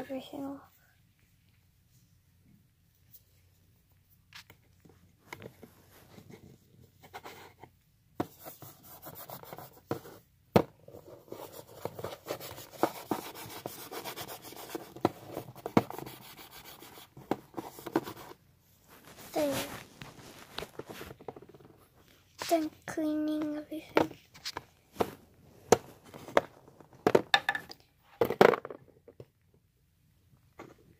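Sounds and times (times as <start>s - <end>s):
tissue rubbing on table: 18.8s - 21.1s.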